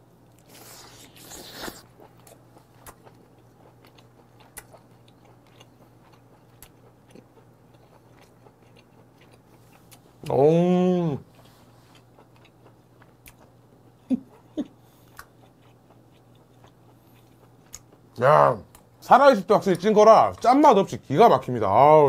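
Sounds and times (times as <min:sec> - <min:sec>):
person chewing with wet clicks: 0:00.3 - 0:10.4, 0:11.2 - 0:19.0
person humming mmm: 0:10.2 - 0:11.2.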